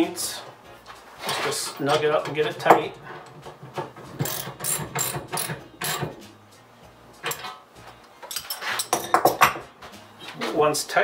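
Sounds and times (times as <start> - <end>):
wrench clicking: 4.2 - 6.2.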